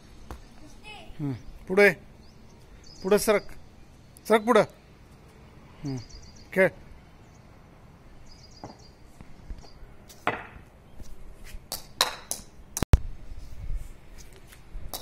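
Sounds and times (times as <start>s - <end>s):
tennis ball bouncing on concrete: 8.6s - 8.9s, 10.1s - 10.7s, 11.7s - 12.9s.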